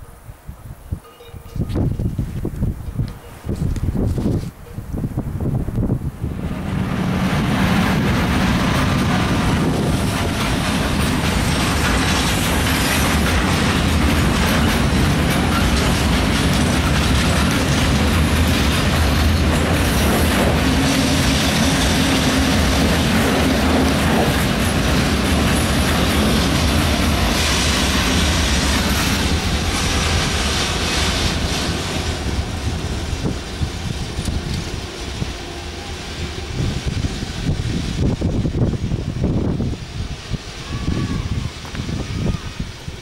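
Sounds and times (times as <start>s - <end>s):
freight train passing: 4.6s - 43.0s
wheels clacking on rails: 6.3s - 39.7s.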